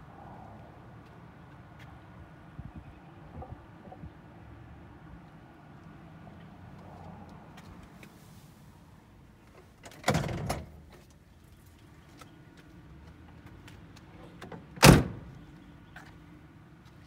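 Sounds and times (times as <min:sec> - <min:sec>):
car door thudding shut: 0:14.8 - 0:15.3.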